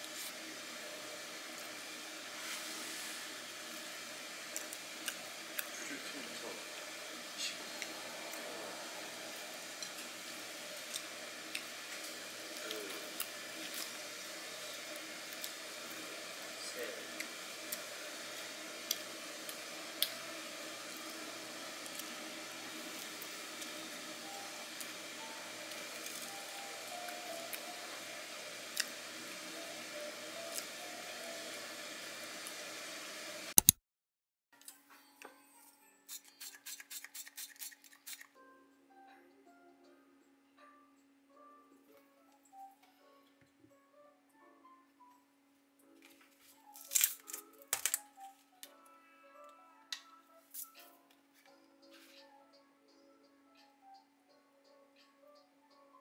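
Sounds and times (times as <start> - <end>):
faint music: 0.0 - 33.4, 34.6 - 56.0
steady hiss: 0.0 - 33.5
steady low hum: 4.1 - 25.9.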